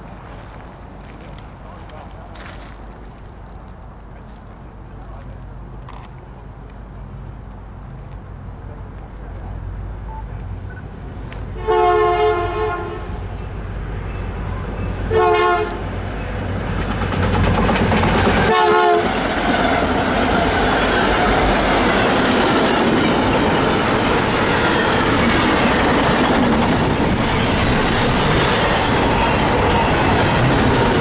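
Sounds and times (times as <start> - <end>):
train wheels on rails: 0.0 - 6.8, 13.0 - 31.0
diesel locomotive passing: 0.0 - 31.0
train air horn blasts: 11.5 - 13.2, 15.1 - 15.8, 18.4 - 19.9.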